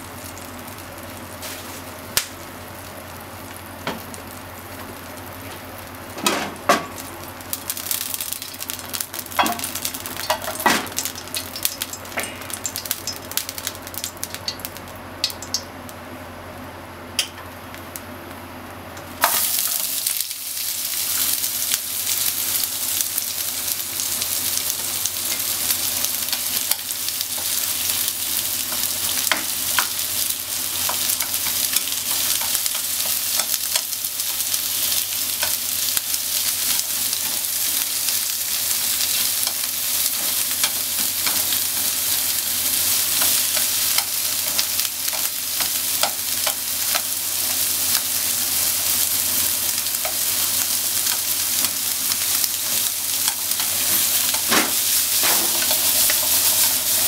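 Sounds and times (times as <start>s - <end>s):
onion sizzling in oil: 0.0s - 57.0s
oil popping and crackling: 2.1s - 5.0s, 6.8s - 15.7s, 19.1s - 57.0s
chopsticks stirring: 42.8s - 48.1s, 52.6s - 57.0s.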